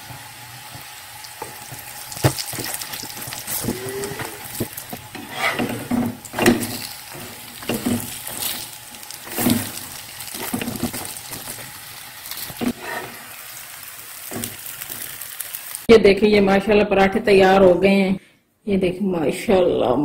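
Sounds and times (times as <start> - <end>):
flatbread sizzling in a pan: 0.0 - 15.9.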